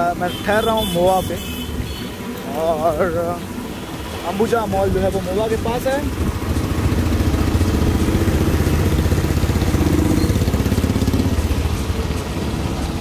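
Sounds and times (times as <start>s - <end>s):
motorcycle engine running: 4.8s - 13.0s.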